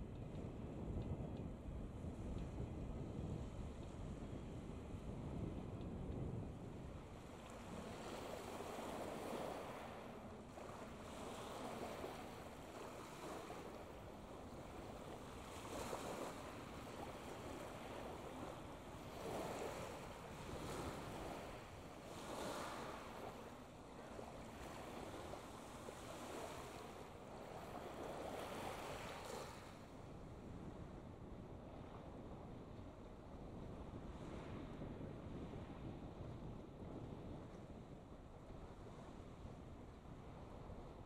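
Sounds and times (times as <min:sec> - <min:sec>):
wind buffeting microphone: 0:00.0 - 0:41.0.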